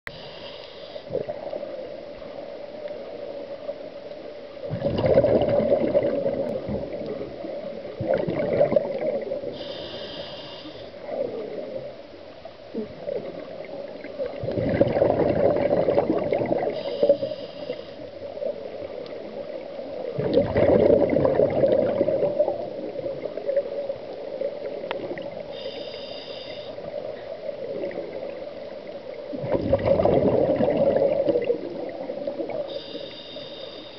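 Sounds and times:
regulator inhalation hiss: 0.1 - 1.1, 9.6 - 11.0, 16.7 - 18.1, 25.5 - 26.9, 32.7 - 33.9
exhaled bubbles rushing: 4.6 - 9.6, 12.9 - 16.8, 18.6 - 23.9, 29.2 - 32.7
steady hum: 32.0 - 33.9.

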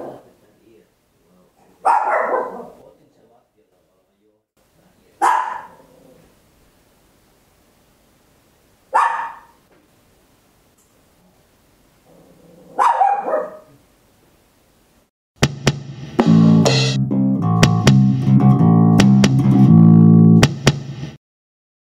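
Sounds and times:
dog barking: 0.0 - 0.3, 1.6 - 2.8, 5.2 - 5.9, 8.9 - 9.6, 12.7 - 13.8
music with bass guitar and drums: 15.4 - 21.2.

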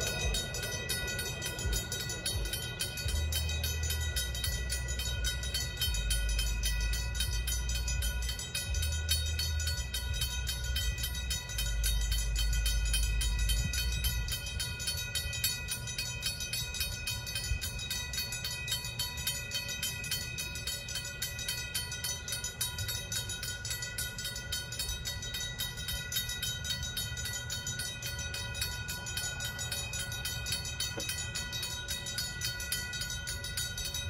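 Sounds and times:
low rumble: 0.0 - 14.6
railroad crossing bell ringing: 0.0 - 34.0.

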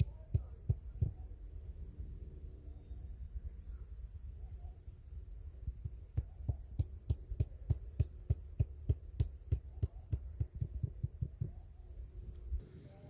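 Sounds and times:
stick tapping into dry soil: 0.0 - 1.4, 5.6 - 11.6.

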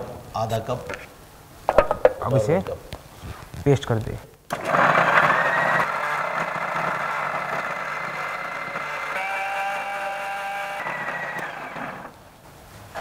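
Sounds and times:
mixer grinder motor whine: 4.5 - 12.2.

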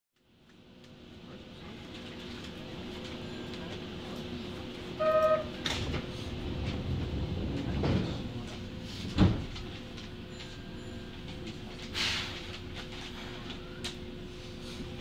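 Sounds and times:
train equipment humming: 0.5 - 15.0
sliding doors closing with thud: 5.0 - 9.8.

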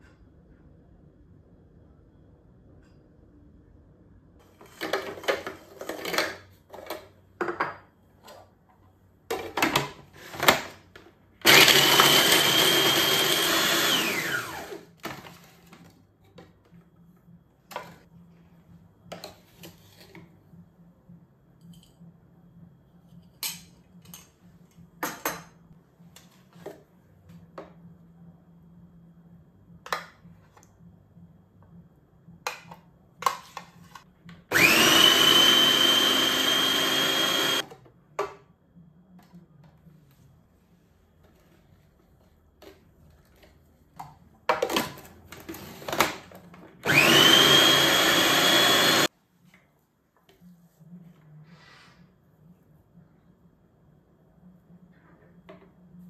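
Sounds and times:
food processor motor whine: 11.4 - 14.8, 34.5 - 37.6, 46.8 - 49.1.

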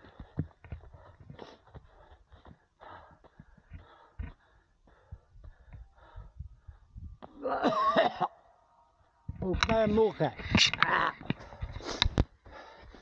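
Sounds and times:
runner breathing: 0.0 - 7.4, 11.3 - 13.0.

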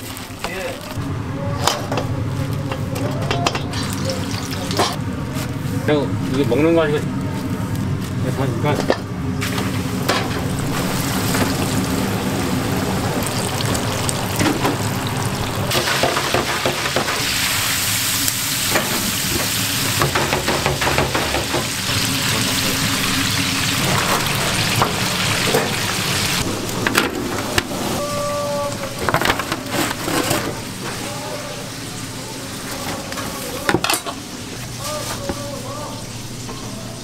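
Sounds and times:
chicken deep-frying in oil: 3.2 - 5.0, 9.4 - 26.5.

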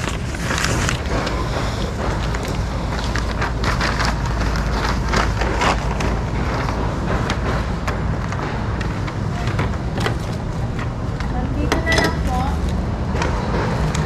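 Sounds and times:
paper bag rustling: 0.0 - 11.1
steady low rumble: 0.0 - 14.0.

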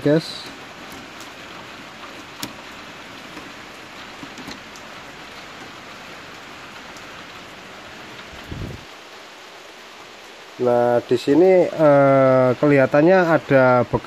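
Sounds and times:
steady rain falling: 0.0 - 14.0.

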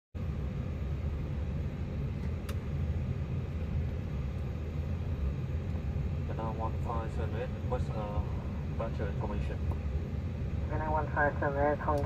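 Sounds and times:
airliner cockpit rumble: 0.2 - 12.0.

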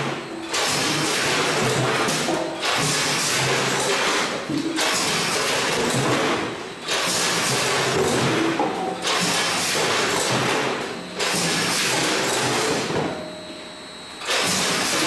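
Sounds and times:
bagging machine mechanical rush: 0.0 - 13.2, 14.2 - 15.0.

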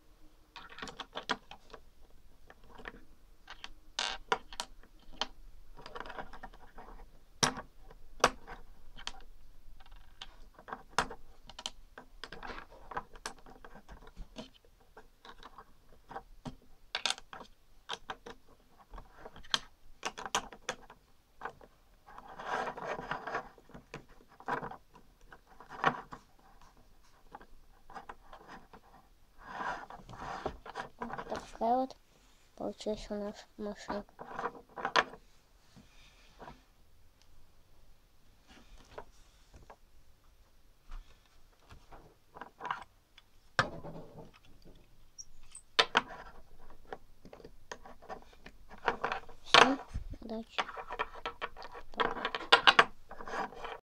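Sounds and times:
plastic bricks clicking: 0.6 - 1.8, 2.5 - 14.6, 16.5 - 21.7, 50.6 - 53.8.

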